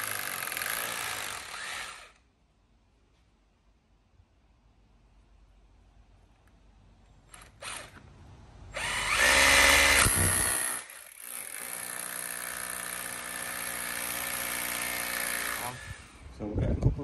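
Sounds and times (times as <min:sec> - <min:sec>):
cordless drill drilling into wall: 0:00.0 - 0:02.2, 0:07.3 - 0:08.0, 0:08.8 - 0:16.2
drill trigger blips: 0:08.8 - 0:11.7.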